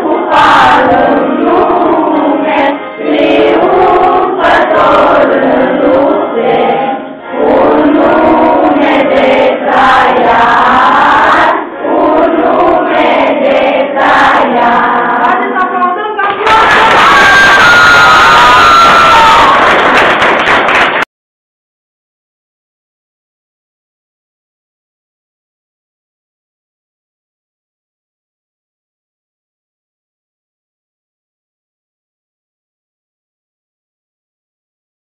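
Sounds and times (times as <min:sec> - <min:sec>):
children singing in unison: 0:00.0 - 0:15.7
people clapping along: 0:16.2 - 0:21.1.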